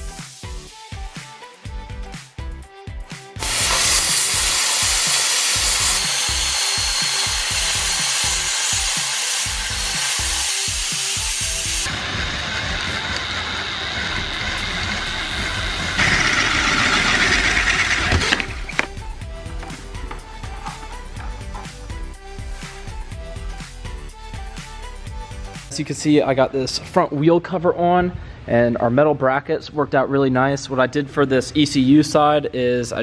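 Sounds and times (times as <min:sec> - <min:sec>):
background music with a beat: 0:00.0 - 0:09.0, 0:18.0 - 0:25.8
plasma cutter hissing: 0:03.4 - 0:18.1
cordless drill boring metal: 0:03.4 - 0:19.0.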